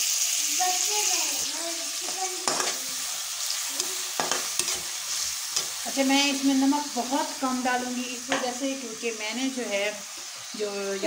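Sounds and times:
vegetables sizzling in oil: 0:00.0 - 0:11.0
metal spatula stirring: 0:02.0 - 0:06.4
spatula scraping against pan: 0:02.0 - 0:06.5.

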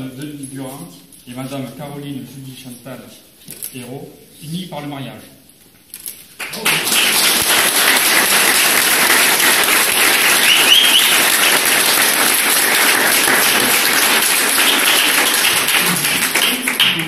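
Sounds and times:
crowd clapping: 0:06.4 - 0:17.0.

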